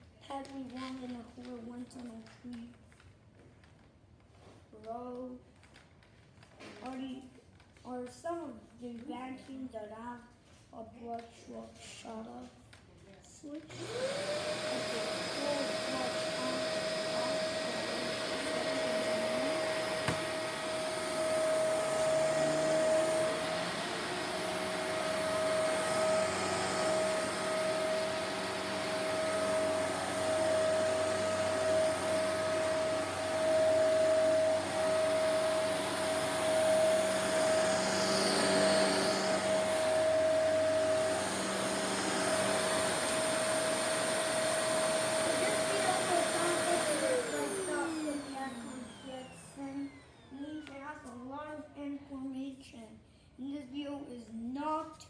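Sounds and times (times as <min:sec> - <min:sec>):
vacuum cleaner running: 0:13.6 - 0:51.2.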